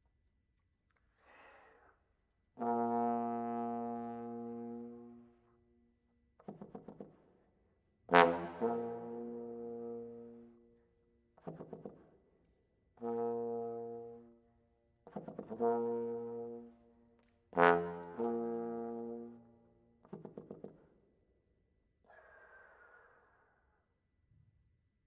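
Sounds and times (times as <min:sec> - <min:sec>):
trombone sustained low notes: 0:02.6 - 0:05.3, 0:08.1 - 0:10.5, 0:13.0 - 0:14.3, 0:15.6 - 0:16.8, 0:17.6 - 0:19.4
airy breath noise: 0:22.1 - 0:23.8.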